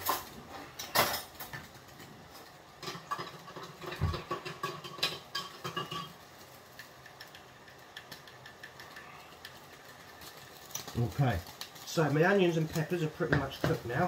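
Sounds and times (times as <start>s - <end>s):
utensils and crockery clinking: 0.0s - 1.7s, 2.3s - 6.2s.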